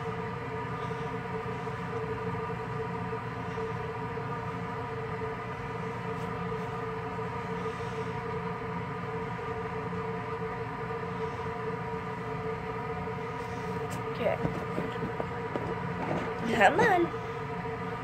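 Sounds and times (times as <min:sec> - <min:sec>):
steady mechanical drone: 0:00.0 - 0:18.0.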